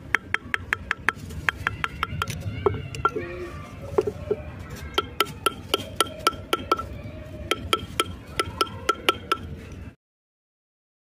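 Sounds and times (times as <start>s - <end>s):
hammer tapping chisel into metal: 5.0s - 6.9s, 7.5s - 9.5s.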